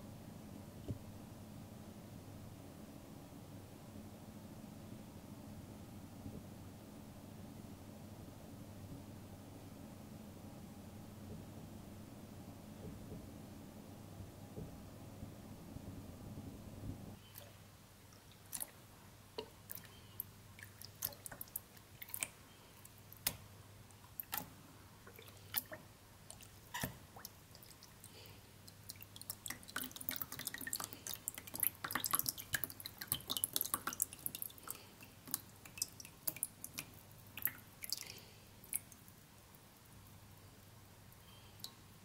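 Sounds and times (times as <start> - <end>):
water dripping into tub: 17.2 - 41.9.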